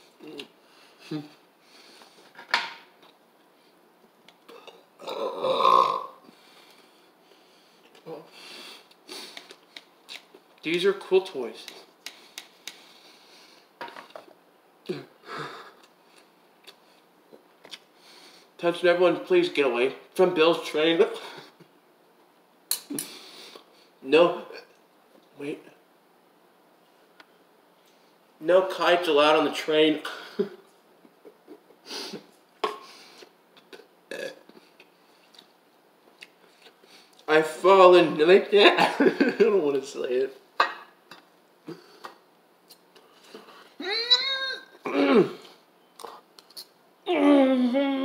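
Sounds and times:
boy burping: 4.5 - 6.2, 33.7 - 34.4, 43.8 - 45.4
person sniffing: 8.4 - 9.6, 31.8 - 33.3.

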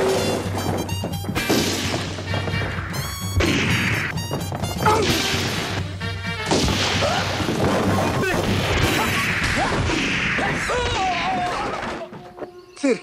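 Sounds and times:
background music: 0.0 - 9.2.

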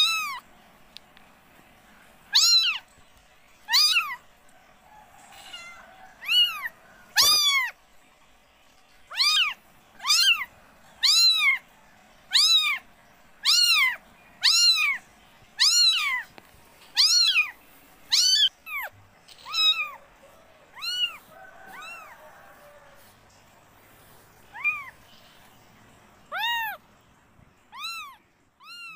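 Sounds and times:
kittens mewing: 0.0 - 0.4, 2.3 - 2.9, 3.6 - 4.2, 5.2 - 7.8, 9.1 - 11.7, 12.3 - 22.2, 24.4 - 25.1, 26.3 - 26.8, 27.7 - 28.9.

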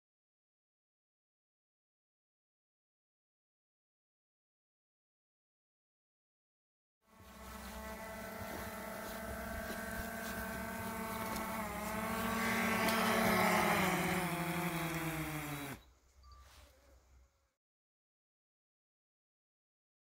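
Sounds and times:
drone propellers humming: 7.1 - 15.9.

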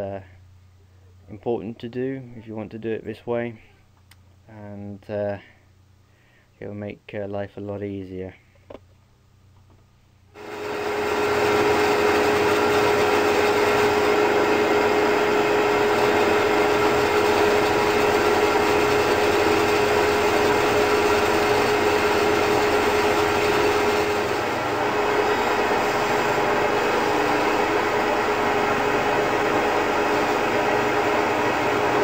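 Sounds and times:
bandsaw cutting wood: 10.4 - 32.0.

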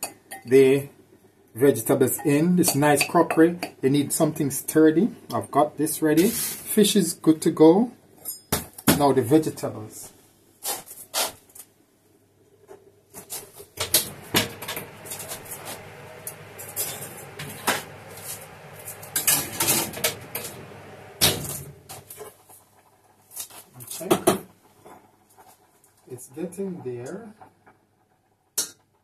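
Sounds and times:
steady hiss: 0.0 - 7.8, 13.1 - 28.8
pots and utensils clattering: 16.5 - 20.6.

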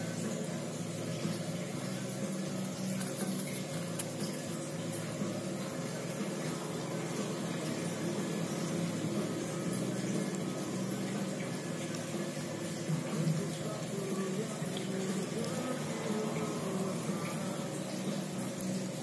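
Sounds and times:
mist maker bubbling water: 0.0 - 19.0.

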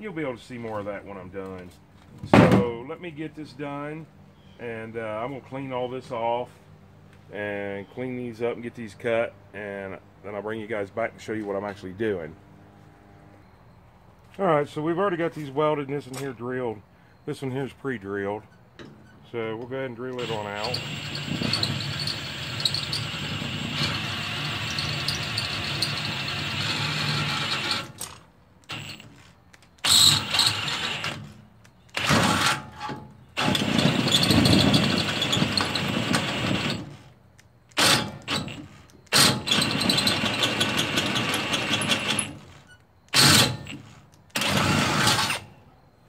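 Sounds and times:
cordless drill boring through steel: 20.2 - 28.0, 29.8 - 31.2, 37.8 - 45.4.

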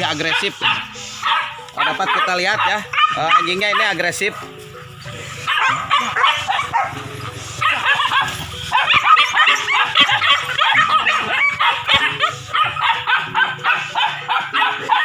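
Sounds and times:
dogs barking excitedly: 0.0 - 15.0.

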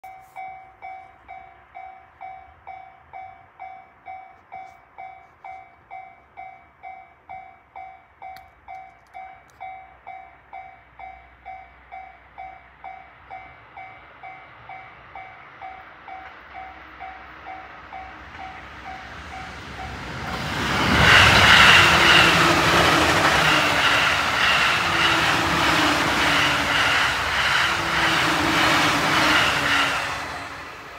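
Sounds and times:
level crossing warning bell: 0.0 - 20.4
train wheels clattering: 15.6 - 30.9.

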